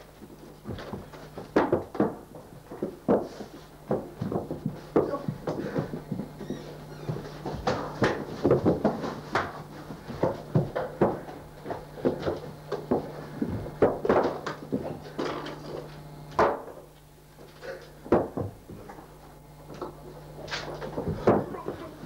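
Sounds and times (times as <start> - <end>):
wooden door opening and shutting: 6.4 - 7.4.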